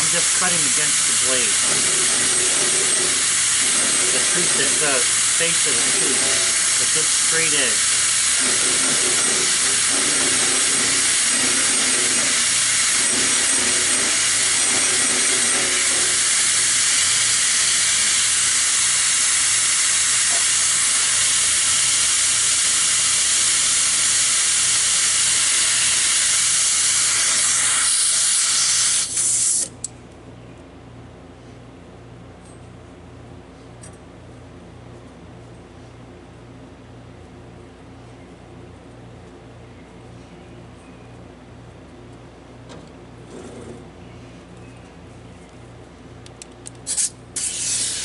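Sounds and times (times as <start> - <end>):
air die grinder hissing: 0.0 - 29.8, 46.9 - 48.0.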